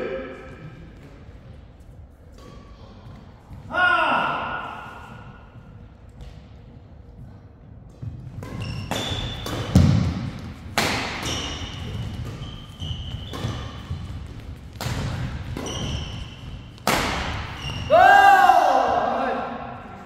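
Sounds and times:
rackets striking shuttlecock: 7.9s - 17.8s
shoes squeaking on floor: 8.4s - 10.0s, 11.2s - 14.6s, 15.3s - 16.8s, 17.4s - 17.9s.

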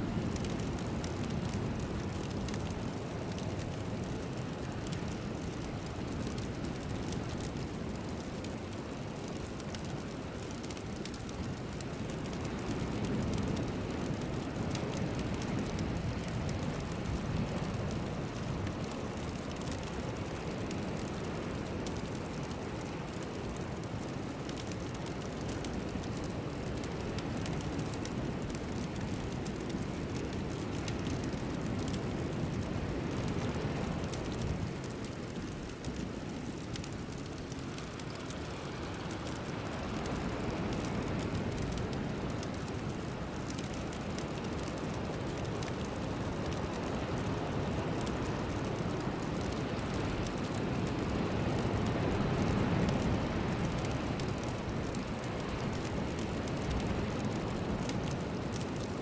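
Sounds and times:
rain-like rushing noise: 0.0s - 59.0s.

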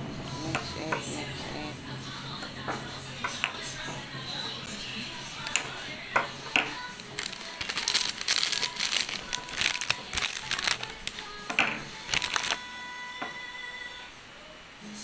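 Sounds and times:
background music: 0.0s - 15.0s
crackly crinkling and rustling: 5.4s - 12.6s.

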